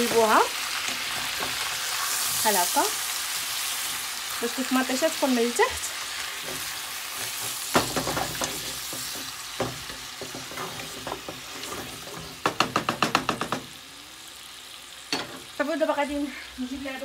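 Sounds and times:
food sizzling in oil: 0:00.0 - 0:17.0
wooden spatula scraping a pot: 0:05.8 - 0:12.4
spatula knocking against pot: 0:12.4 - 0:13.7.

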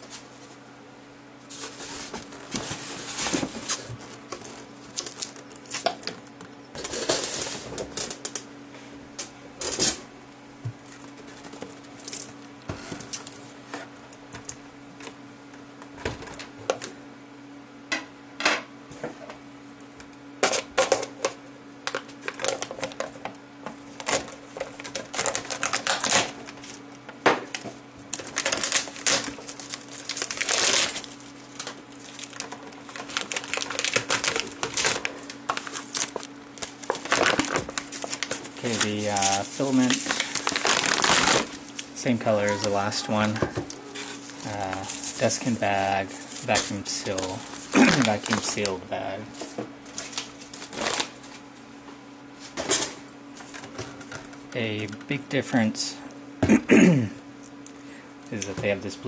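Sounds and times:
cardboard and foam rustling: 0:01.5 - 0:05.8, 0:28.1 - 0:51.4
plastic crinkling: 0:01.5 - 0:06.0, 0:24.0 - 0:26.8, 0:28.1 - 0:51.4.

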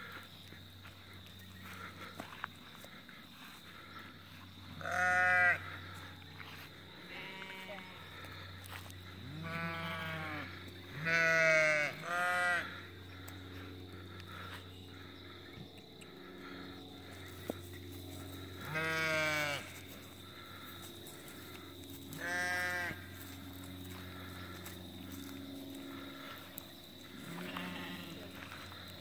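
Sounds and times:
sheep bleating: 0:04.8 - 0:05.8, 0:07.0 - 0:08.2, 0:09.2 - 0:12.8, 0:18.6 - 0:19.8, 0:22.1 - 0:23.0, 0:27.1 - 0:28.6.

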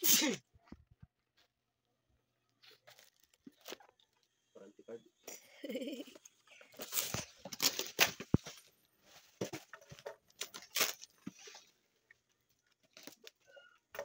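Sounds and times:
cardboard rustling and scraping: 0:06.7 - 0:11.8.

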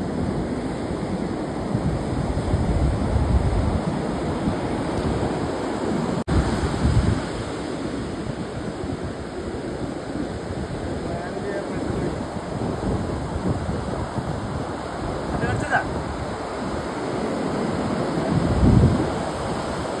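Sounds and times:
rough surf breaking: 0:00.0 - 0:20.0
wind buffeting microphone: 0:00.0 - 0:20.0.

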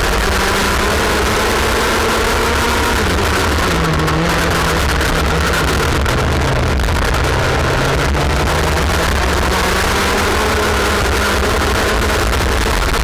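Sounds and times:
kart engine: 0:00.0 - 0:13.0
rushing noise on microphone: 0:00.0 - 0:13.0.

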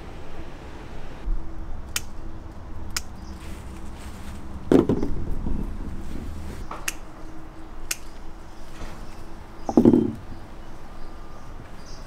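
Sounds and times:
pruning shears snipping twigs: 0:01.9 - 0:02.3, 0:02.9 - 0:04.0, 0:06.7 - 0:08.3
shear blades clicking: 0:02.9 - 0:03.2, 0:06.8 - 0:07.1, 0:07.8 - 0:08.2
rustling thump of branches: 0:03.1 - 0:07.1.

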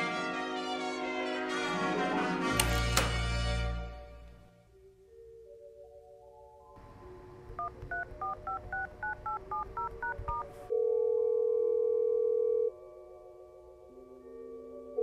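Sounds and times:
keypad dialing beeps: 0:07.6 - 0:10.5
phone ringing tone: 0:07.6 - 0:12.8.

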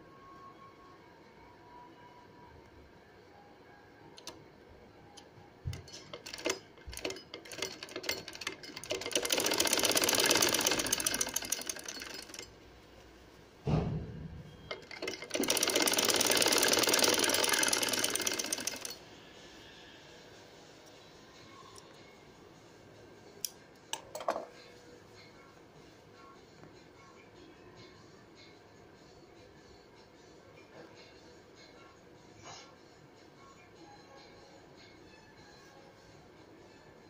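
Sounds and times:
sewing machine stitching: 0:05.7 - 0:12.5, 0:14.7 - 0:19.0
thump: 0:13.6 - 0:14.5.

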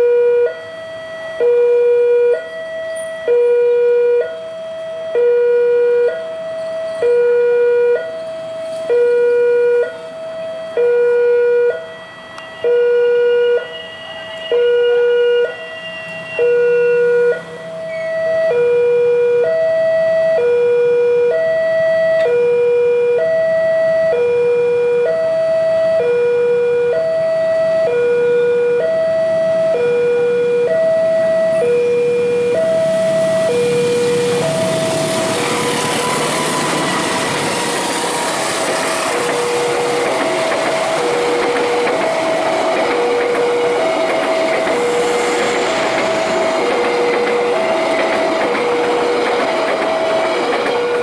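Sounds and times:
two-tone crossing alarm chime: 0:00.0 - 0:51.0.

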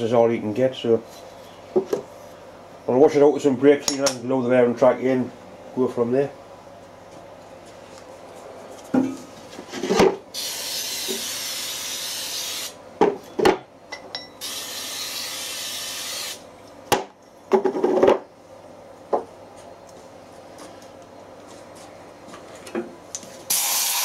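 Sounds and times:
aerosol spray hissing: 0:23.5 - 0:24.0.

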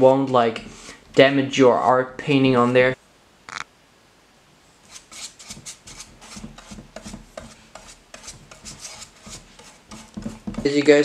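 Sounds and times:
scratchy brush strokes: 0:04.8 - 0:11.0.

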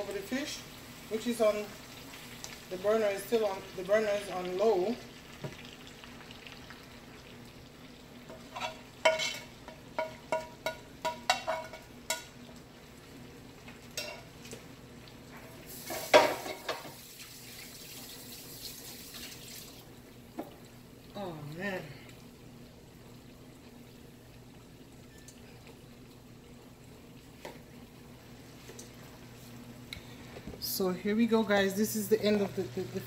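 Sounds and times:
fish sizzling in a pan: 0:00.0 - 0:30.2
cookware clatter: 0:08.4 - 0:12.3, 0:15.8 - 0:17.0.

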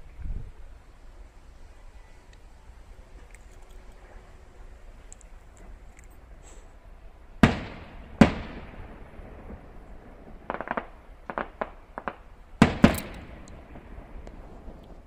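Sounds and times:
firework booms with echoes: 0:07.4 - 0:14.8
firework sharp cracks: 0:07.4 - 0:15.0.

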